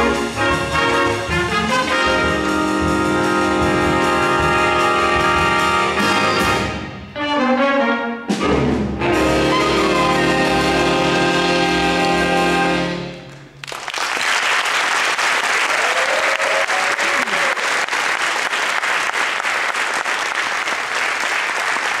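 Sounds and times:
jazz big band chord: 0:00.0 - 0:13.3
audience applause: 0:13.3 - 0:22.0.

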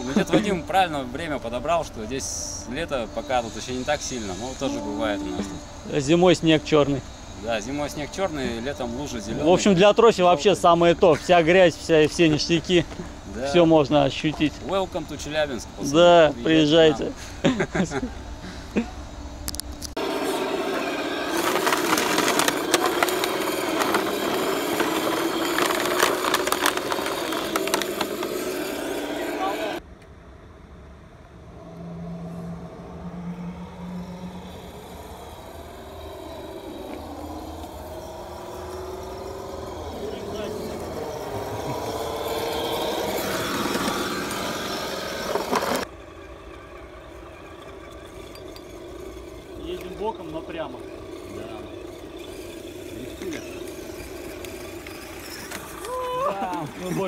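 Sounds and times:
electric motor and gears whining: 0:00.0 - 0:29.9, 0:30.6 - 0:57.0
wheels crackling on rough ground: 0:19.3 - 0:29.8, 0:33.7 - 0:57.0.

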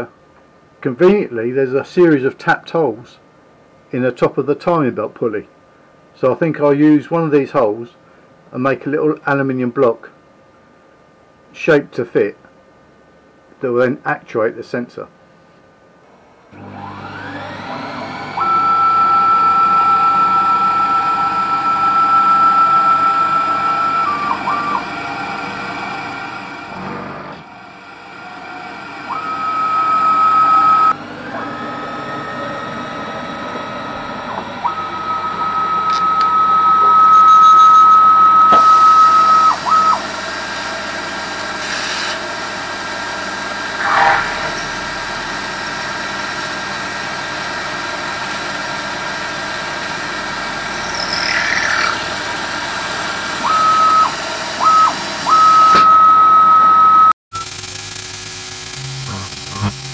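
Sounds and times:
mill spindle high whine: 0:16.1 - 0:59.9.

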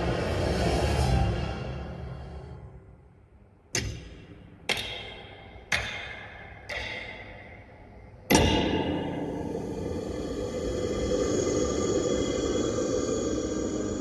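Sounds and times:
heavy echoing clunks: 0:03.6 - 0:14.0.

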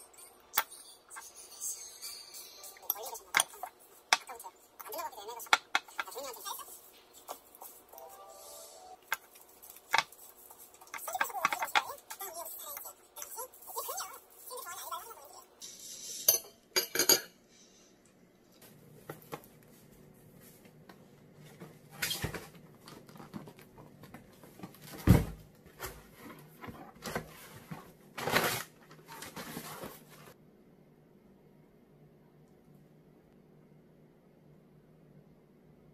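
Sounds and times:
paper packing rustling: 0:25.8 - 0:30.4.

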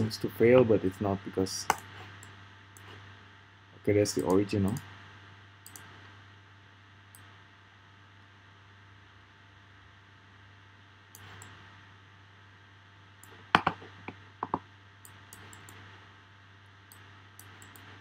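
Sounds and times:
low electrical hum: 0:00.0 - 0:18.0
faint high ticks: 0:05.6 - 0:05.9, 0:16.9 - 0:17.9.

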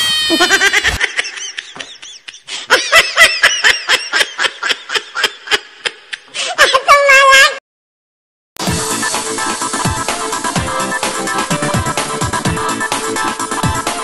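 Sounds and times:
high-pitched laughter: 0:00.0 - 0:07.6.

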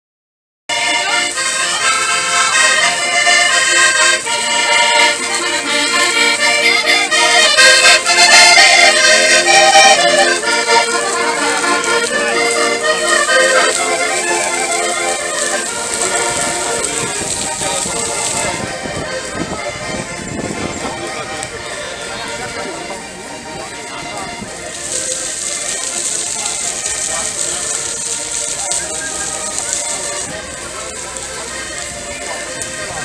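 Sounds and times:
button accordions playing folk tune: 0:00.7 - 0:33.0.

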